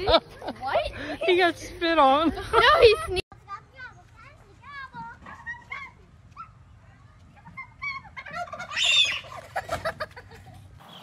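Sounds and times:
turkey gobbling: 7.6 - 10.1.

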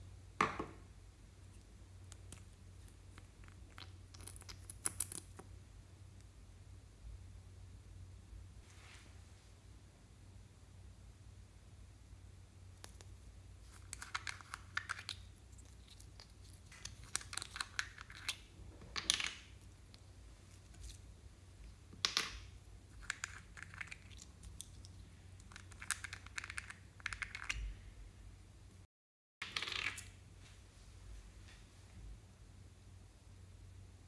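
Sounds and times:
plastic caps clicking and rattling: 13.7 - 15.3, 16.1 - 19.6, 25.4 - 27.6.

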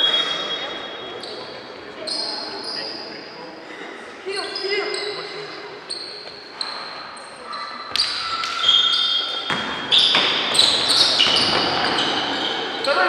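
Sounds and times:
voices in hall: 0.0 - 13.0
shoes squeaking: 5.9 - 13.0.

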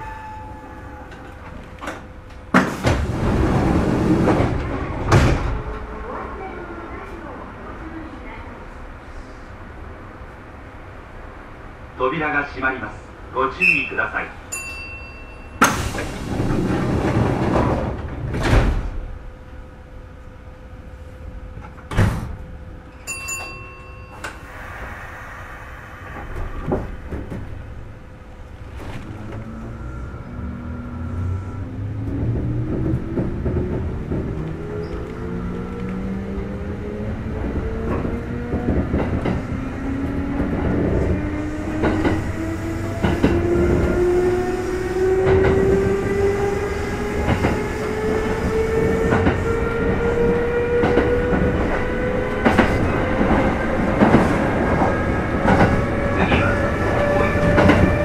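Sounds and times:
low steady train rumble: 0.0 - 58.0
sliding doors thumping shut: 1.9 - 5.6, 15.6 - 19.2, 21.7 - 22.4
pneumatic doors air rush: 15.6 - 17.5, 21.9 - 22.4, 24.1 - 27.6.

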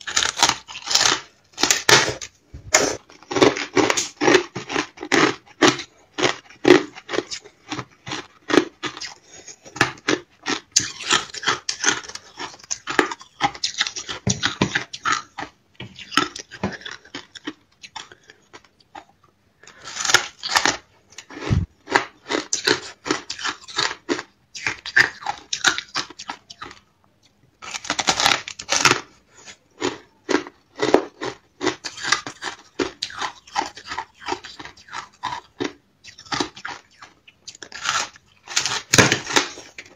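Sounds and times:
ice crunching being chewed: 0.0 - 26.8, 27.6 - 39.9.

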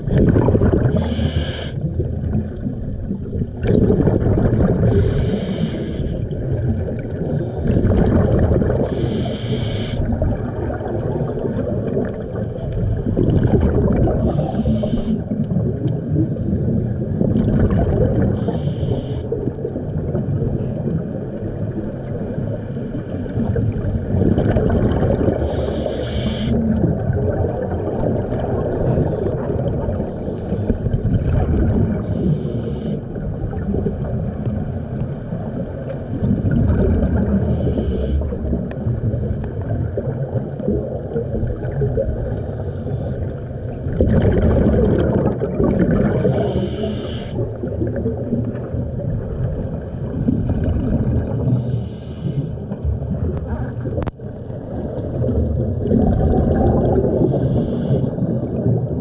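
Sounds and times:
exhaled bubbles rumbling: 0.0 - 59.0
regulator hissing breaths: 0.9 - 1.8, 4.9 - 6.3, 8.9 - 10.1, 14.2 - 15.3, 18.4 - 19.4, 25.4 - 26.6, 32.0 - 33.1, 37.4 - 38.4, 42.3 - 43.3, 46.3 - 47.4, 51.4 - 52.6, 57.2 - 58.3.

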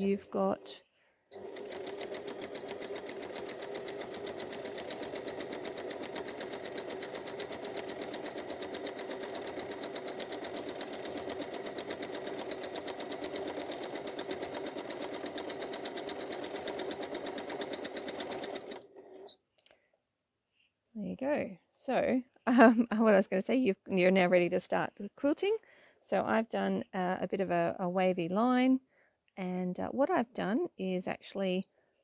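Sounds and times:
sewing machine ticking: 0.0 - 19.4.

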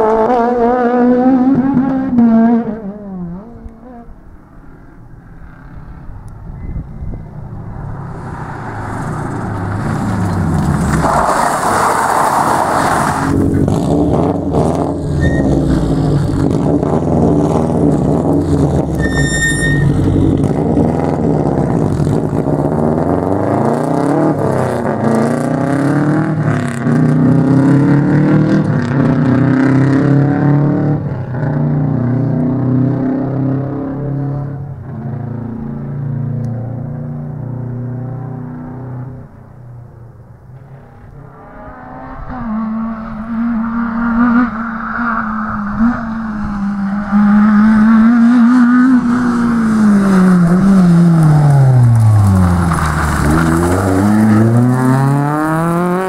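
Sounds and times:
rally car engine: 0.0 - 56.0
tyres sliding on loose surface: 8.7 - 13.7.

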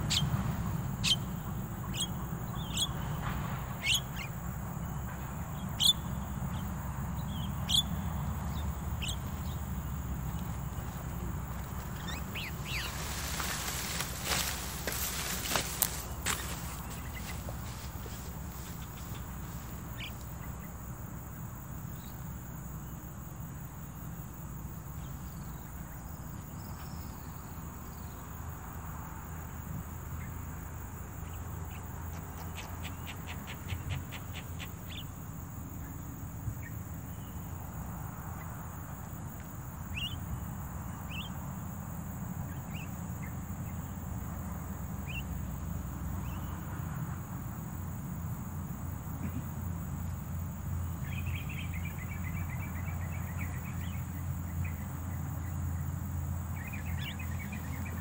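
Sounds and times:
low background rumble: 0.0 - 22.6
bird chirps: 1.0 - 3.2, 3.8 - 4.4, 5.5 - 20.8.

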